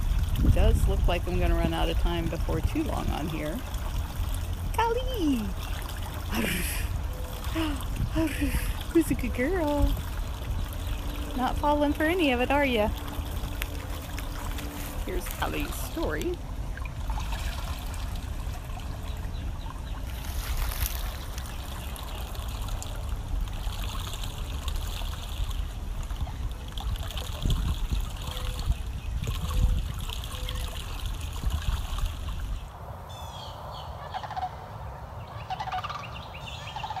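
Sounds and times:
water sloshing: 0.0 - 32.8
water splashes: 0.0 - 32.9
low outdoor rumble: 0.0 - 37.0
birds chirping: 4.2 - 17.2, 17.9 - 22.8, 32.5 - 37.0.

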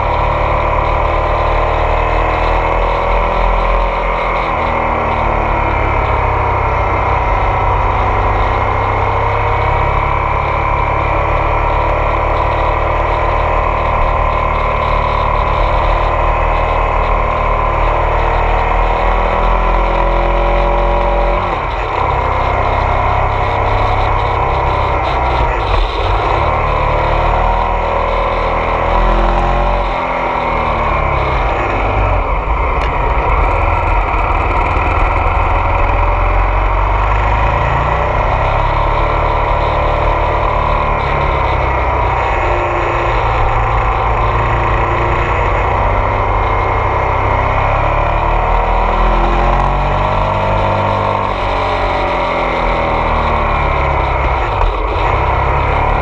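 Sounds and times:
motorcycle engine while riding: 0.0 - 56.0
wind noise on microphone: 18.3 - 38.8.

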